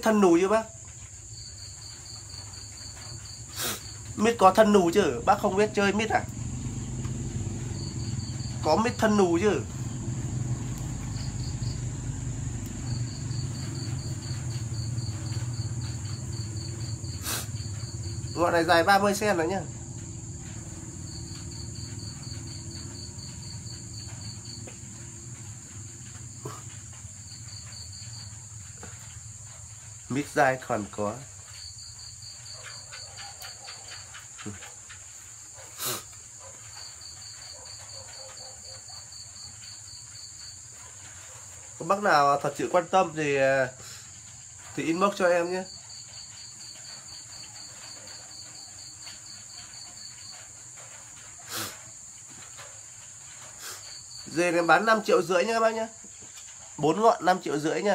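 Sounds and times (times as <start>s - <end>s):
high-pitched hiss: 0.0s - 6.8s, 10.8s - 19.7s, 35.6s - 36.3s, 51.4s - 52.5s, 53.4s - 57.9s
crickets trilling: 0.0s - 57.9s
insect short chirps: 9.7s - 18.7s.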